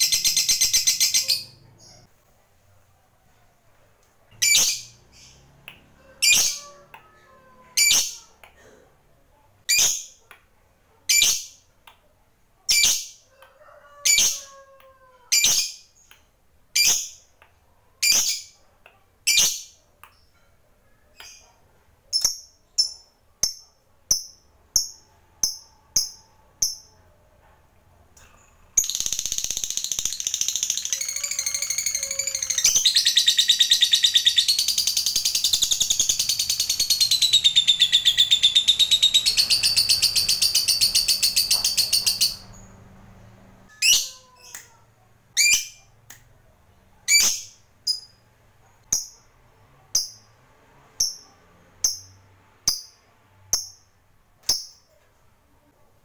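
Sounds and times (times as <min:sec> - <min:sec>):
lovebird chirping: 0:00.0 - 0:02.1, 0:04.3 - 0:05.6, 0:28.4 - 0:42.8, 0:47.1 - 0:48.2.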